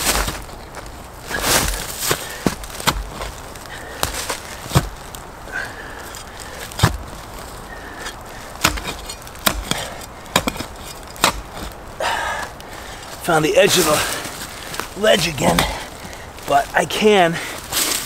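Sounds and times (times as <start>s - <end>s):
digging tool striking ground: 0.0s - 5.2s, 6.1s - 7.3s, 8.0s - 11.8s
soil and leaves scraping: 0.0s - 18.0s.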